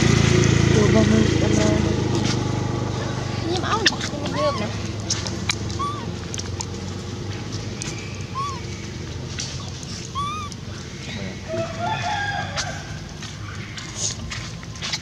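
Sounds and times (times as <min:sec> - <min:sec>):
animal chirps: 0:03.7 - 0:06.2, 0:07.8 - 0:11.2
wavering animal call: 0:03.7 - 0:06.3, 0:07.9 - 0:09.0, 0:09.6 - 0:11.0.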